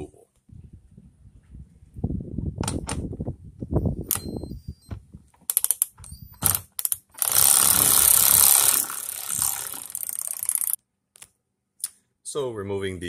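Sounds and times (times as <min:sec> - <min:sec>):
ratchet wrench clicking: 0:05.5 - 0:10.8.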